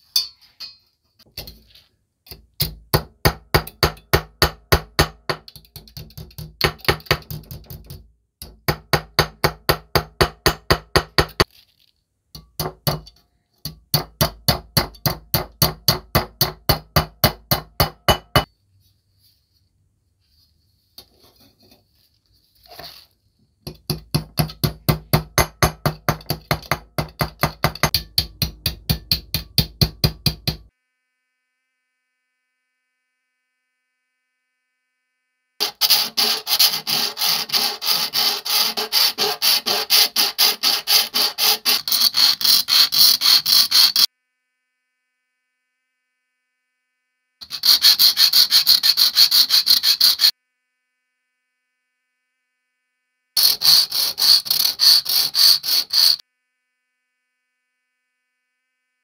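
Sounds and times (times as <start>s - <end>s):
hammer striking metal plate: 0.1s - 0.8s, 2.6s - 7.8s, 8.4s - 11.5s, 12.4s - 18.5s, 23.7s - 30.7s.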